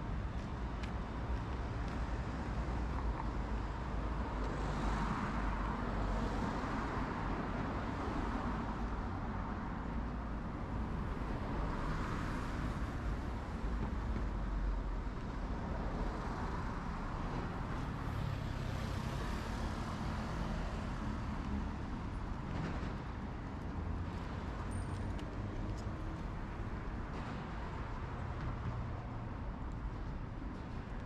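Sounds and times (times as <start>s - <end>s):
road traffic passing: 16.0s - 31.0s.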